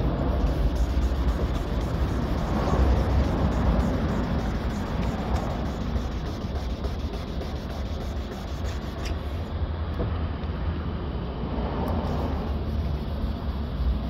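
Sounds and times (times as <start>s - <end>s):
sanding pad rubbing wet paint: 0.0s - 9.5s, 12.1s - 14.0s
steady low rumble: 0.0s - 14.0s.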